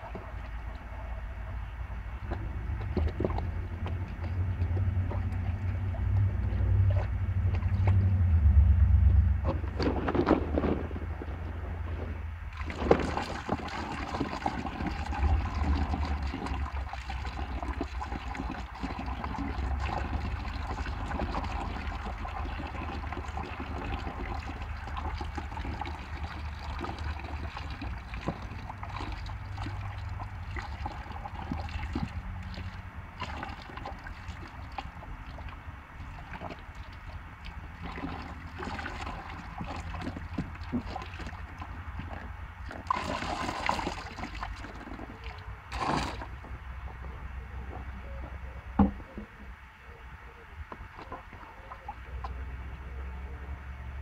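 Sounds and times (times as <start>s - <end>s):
wind rumbling on microphone: 1.9s - 18.4s.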